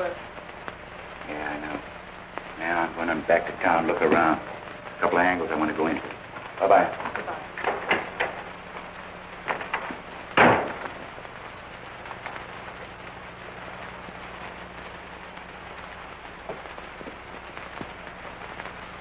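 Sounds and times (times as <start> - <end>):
film soundtrack hiss and hum: 0.0 - 19.0
sharp loud bang: 10.4 - 10.9.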